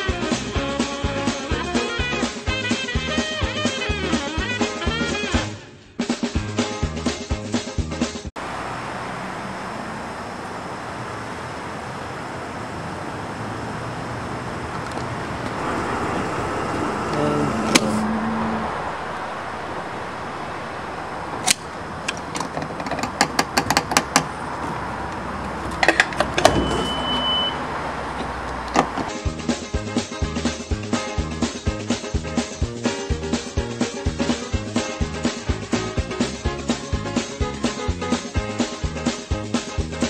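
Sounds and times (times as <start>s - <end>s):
short high beep: 15.6s - 18.8s, 26.4s - 27.7s
fuel nozzle clicks and knocks: 22.1s - 24.3s.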